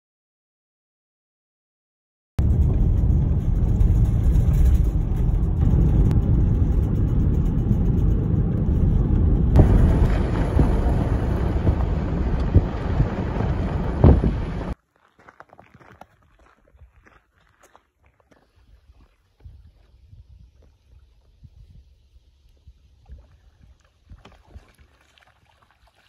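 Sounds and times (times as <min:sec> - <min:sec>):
vehicle road and wind noise: 0:02.4 - 0:14.8.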